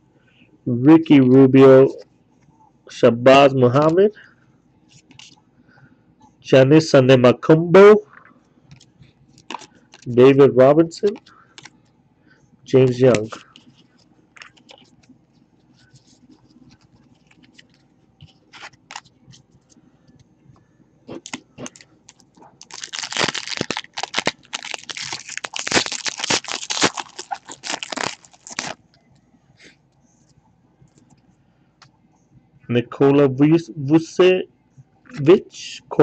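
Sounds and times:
wrapper tearing and crinkling: 21.1s - 28.8s.

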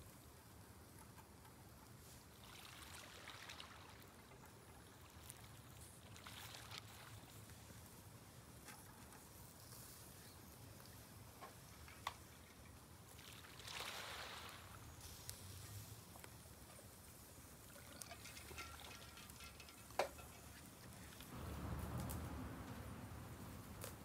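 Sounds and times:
sea waves washing in: 13.2s - 16.0s
low steady rumble: 21.2s - 24.0s.

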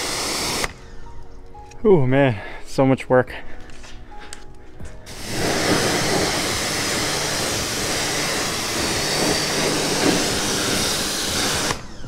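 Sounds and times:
pressure washer spraying water: 0.0s - 0.8s, 5.1s - 11.9s.

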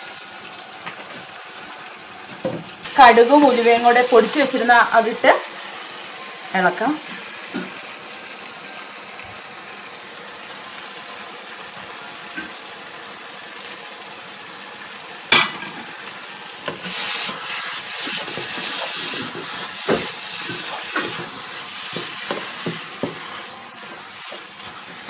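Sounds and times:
food sizzling in a frying pan: 0.0s - 25.0s
knock on a pan: 2.4s - 2.7s
wooden spoon scraping a pan: 16.7s - 25.0s.

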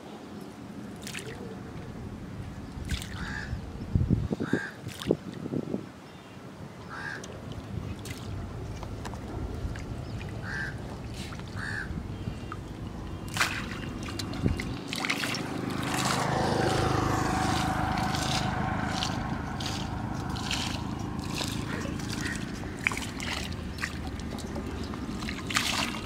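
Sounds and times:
hand splashing water: 13.3s - 26.0s.

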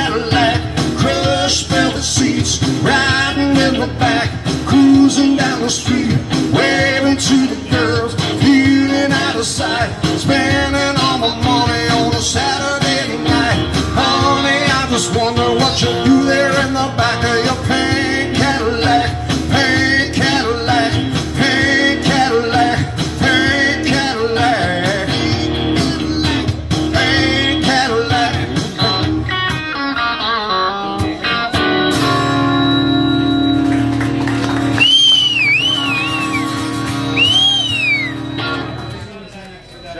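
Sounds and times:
live rock band with singing: 0.0s - 39.9s
high gliding whistle-like tones: 34.8s - 39.9s.

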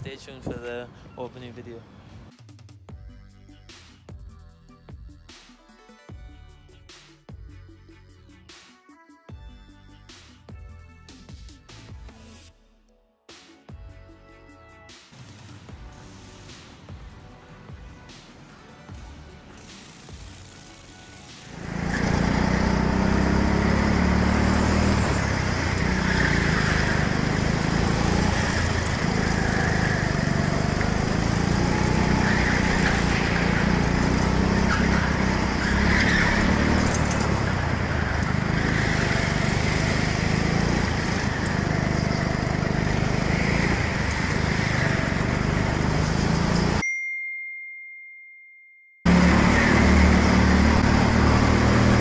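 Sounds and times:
go-kart engine running: 19.8s - 46.8s, 49.1s - 52.0s.

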